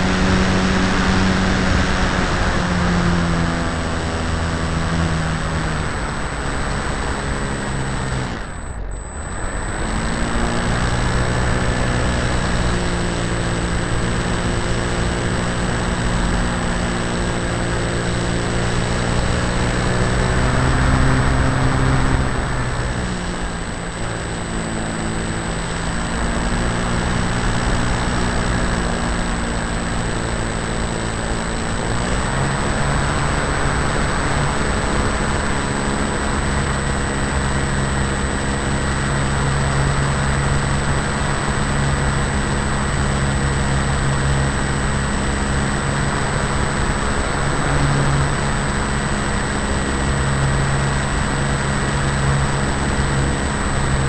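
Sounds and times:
model plane motor and propeller: 0:00.0 - 0:54.0.

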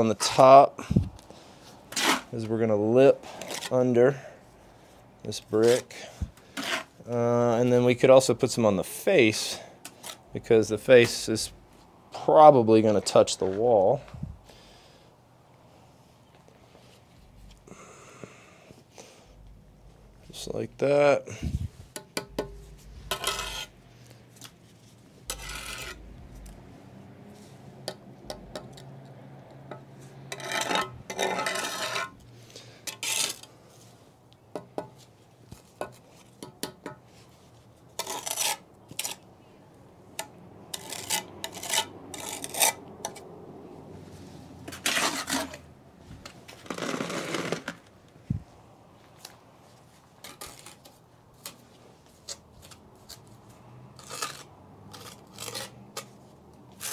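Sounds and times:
trowel scraping brick and mortar: 0:01.9 - 0:02.5, 0:06.5 - 0:07.0, 0:22.2 - 0:23.8, 0:25.2 - 0:26.6, 0:30.0 - 0:32.2, 0:32.8 - 0:33.6, 0:37.9 - 0:39.2, 0:40.2 - 0:43.2, 0:44.7 - 0:45.7, 0:46.6 - 0:47.8, 0:50.2 - 0:53.4, 0:54.0 - 0:56.9.

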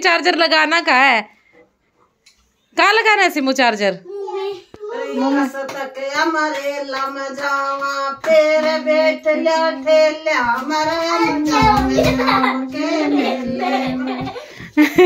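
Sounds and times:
child singing held notes: 0:10.8 - 0:14.3.

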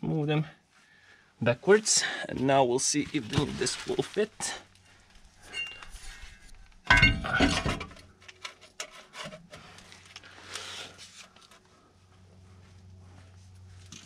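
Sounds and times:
metallic clank with ring: 0:06.9 - 0:07.6.

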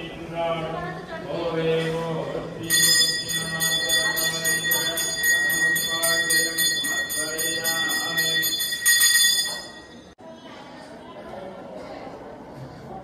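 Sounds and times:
hand bell ringing rapidly: 0:02.6 - 0:10.0.

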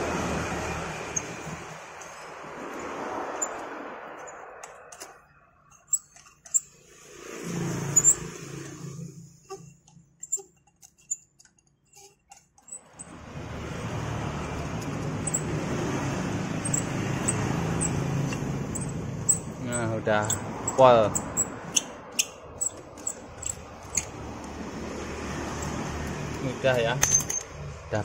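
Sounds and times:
drill rumbling: 0:00.0 - 0:09.9
metallic clicks: 0:01.1 - 0:06.8, 0:16.6 - 0:24.6, 0:25.5 - 0:27.6.

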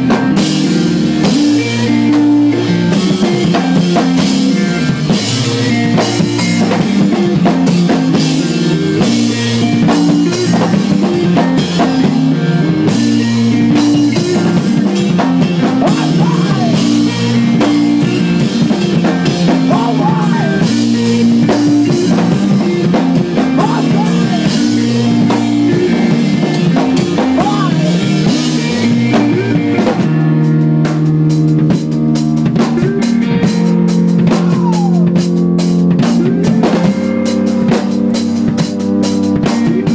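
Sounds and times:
rock band playing live: 0:00.0 - 0:39.9.

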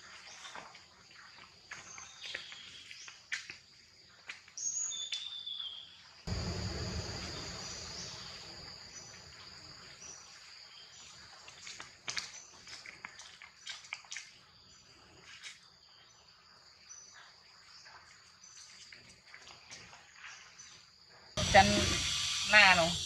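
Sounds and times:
insects droning: 0:05.7 - 0:12.6, 0:14.4 - 0:23.0
low rumbling noise: 0:06.3 - 0:09.5.

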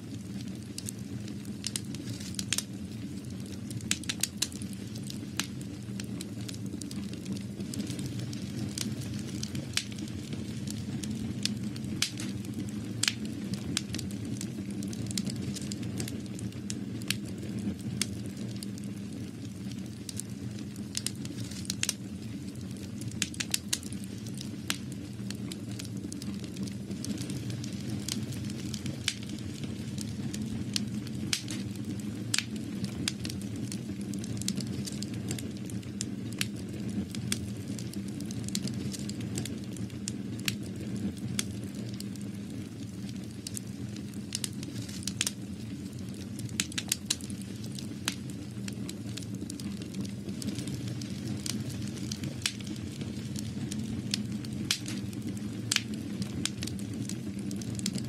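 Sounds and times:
sharp clicks and crackles: 0:10.7 - 0:14.2, 0:22.8 - 0:31.7, 0:41.4 - 0:57.2.

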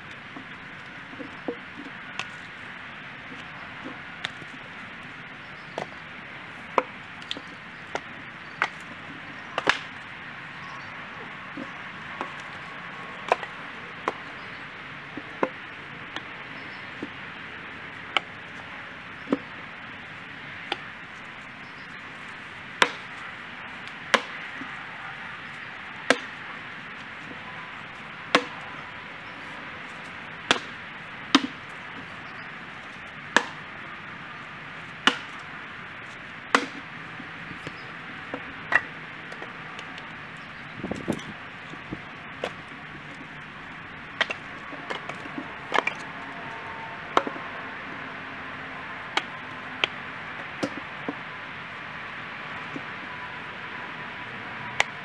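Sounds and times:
axe splitting firewood: 0:05.7 - 0:06.0, 0:06.7 - 0:09.0, 0:09.6 - 0:10.0, 0:11.5 - 0:14.4, 0:15.1 - 0:16.3, 0:18.1 - 0:18.6, 0:19.2 - 0:19.6, 0:22.2 - 0:23.2, 0:23.8 - 0:24.7, 0:26.0 - 0:26.4, 0:28.2 - 0:28.7, 0:29.8 - 0:32.2, 0:33.3 - 0:33.7, 0:34.9 - 0:35.4, 0:36.5 - 0:40.0, 0:40.8 - 0:46.2, 0:47.1 - 0:47.4, 0:49.1 - 0:51.2, 0:54.8 - 0:55.0.

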